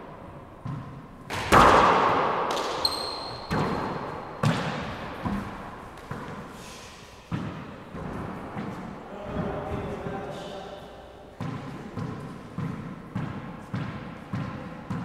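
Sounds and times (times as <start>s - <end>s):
handball hits echoing: 0.0s - 10.2s, 11.3s - 15.0s
short high squeak: 2.8s - 3.5s.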